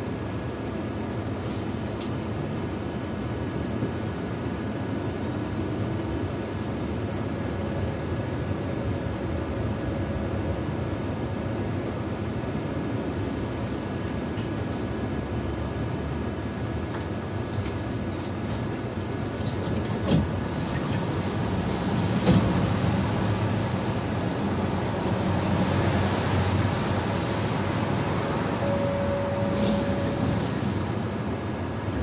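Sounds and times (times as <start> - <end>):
tram rumbling on rails: 0.0 - 32.0
steady whine: 23.4 - 32.0.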